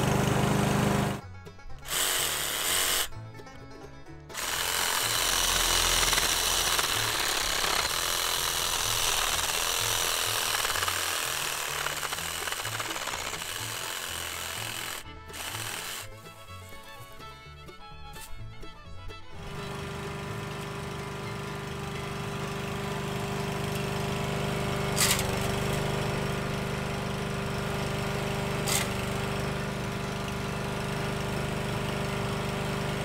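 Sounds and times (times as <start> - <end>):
light background music: 1.2 - 22.7
reciprocating saw cutting wood: 1.8 - 3.1, 4.3 - 18.4, 19.4 - 32.9.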